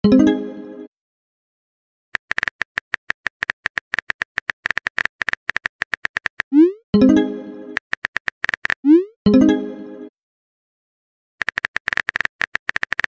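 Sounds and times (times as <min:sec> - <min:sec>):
keyboard click typing: 0:02.2 - 0:06.6, 0:07.8 - 0:09.0, 0:11.4 - 0:13.0.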